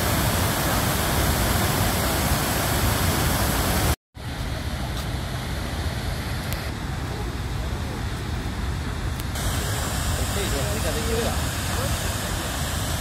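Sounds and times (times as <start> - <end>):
waterfall rushing: 0.0 - 4.0, 9.4 - 13.0.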